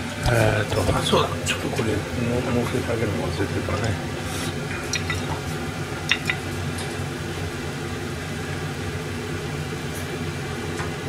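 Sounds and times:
low mechanical hum of appliance: 0:00.0 - 0:11.0
chopsticks clicking against plate: 0:04.8 - 0:05.3.

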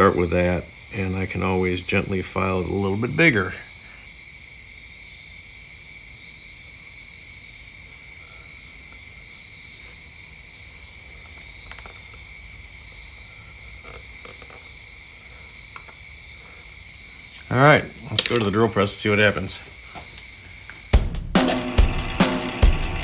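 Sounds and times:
high-pitched drone: 0:21.4 - 0:23.0.

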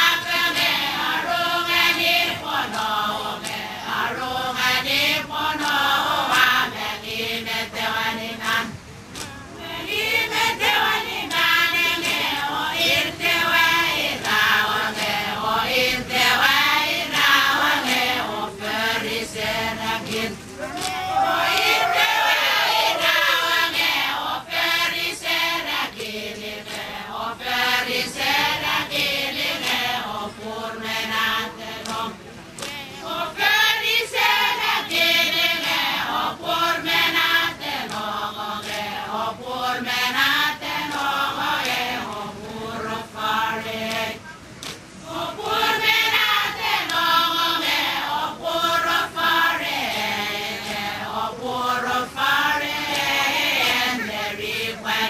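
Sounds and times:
women chanting in unison: 0:00.0 - 0:55.0.

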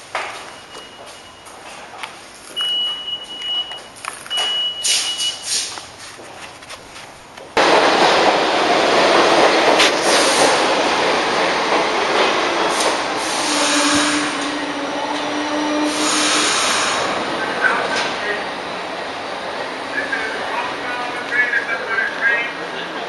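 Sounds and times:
subway train wheels rattling: 0:07.2 - 0:23.0.

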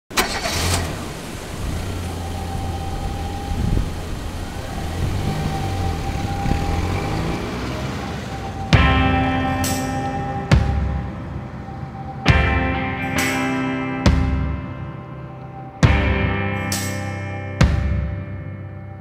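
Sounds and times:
car road and engine noise: 0:00.1 - 0:19.0.

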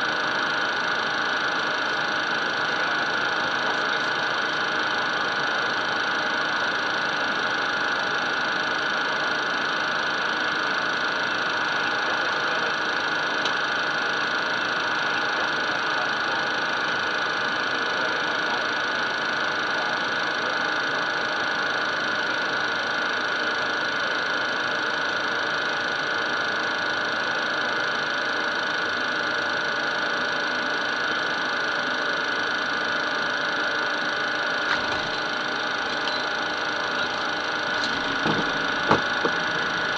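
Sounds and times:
constant high whine: 0:00.0 - 0:39.9.

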